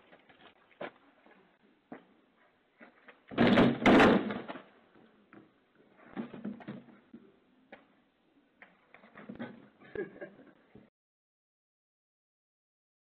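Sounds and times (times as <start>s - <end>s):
wooden fence crashing down: 3.3s - 4.7s.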